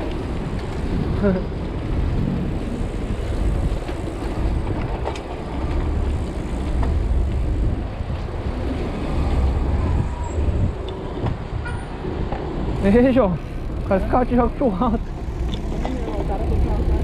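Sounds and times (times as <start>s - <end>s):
wind rumble on microphone: 0.0s - 12.9s
cars passing: 0.0s - 17.0s.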